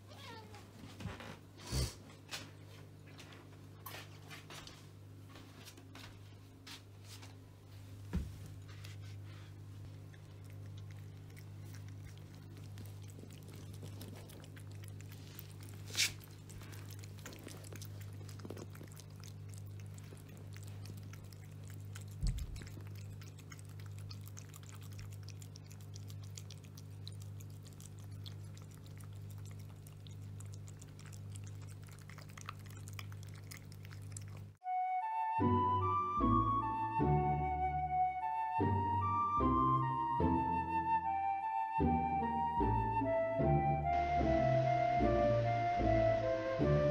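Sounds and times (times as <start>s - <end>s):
cats chewing food: 7.8s - 34.6s.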